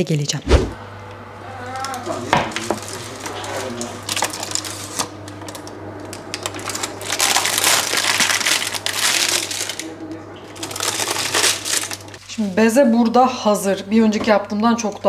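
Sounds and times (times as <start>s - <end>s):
steady low hum: 0.0s - 13.9s
baking paper crinkling: 1.8s - 12.2s.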